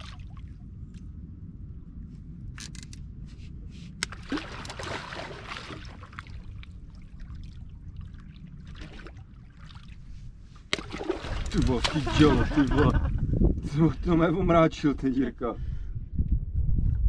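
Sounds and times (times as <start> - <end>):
water splashing against boat: 0.0 - 0.7, 3.8 - 13.2
steady low rumble: 0.0 - 17.0.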